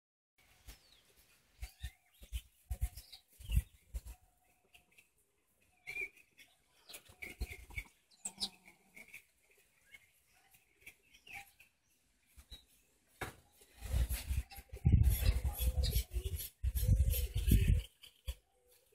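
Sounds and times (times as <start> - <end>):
chickens clucking softly: 1.6 - 11.7, 13.6 - 18.9.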